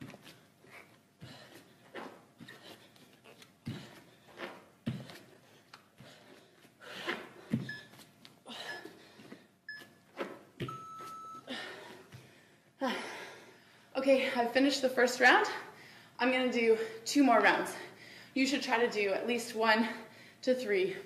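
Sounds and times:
bare feet thudding on exercise mat: 1.2 - 8.2, 8.8 - 11.2
phone timer beeps: 10.6 - 11.5.

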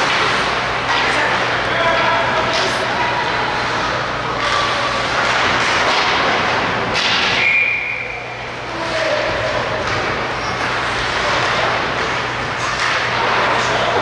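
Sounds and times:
hockey sticks and puck clacking: 0.0 - 7.9, 8.6 - 14.0
steady rink noise: 0.0 - 14.0.

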